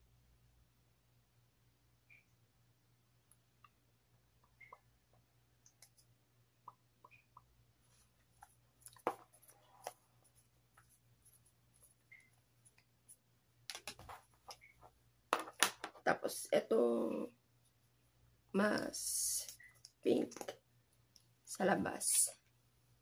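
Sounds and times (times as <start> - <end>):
faint clicks and taps: 3.2 - 16.0.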